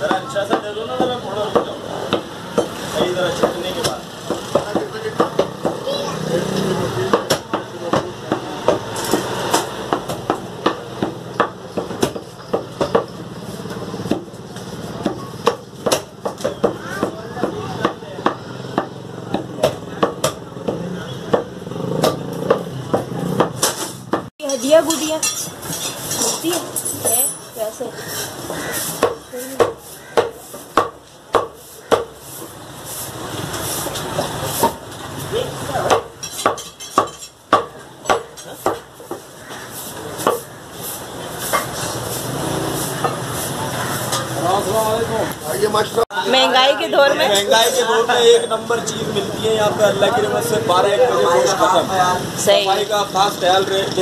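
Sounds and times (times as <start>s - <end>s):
cleavers chopping meat and bone: 0.0s - 5.9s, 6.6s - 26.2s, 27.9s - 45.4s.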